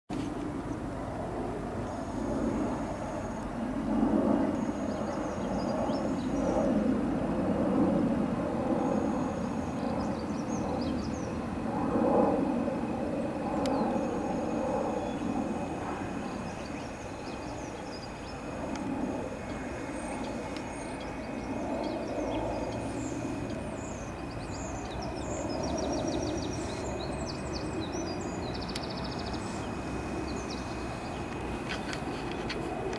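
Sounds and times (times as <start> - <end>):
distant traffic rumble: 0.1 - 32.9
small birds chirping and trilling: 4.6 - 6.7, 8.8 - 11.5, 16.1 - 32.6.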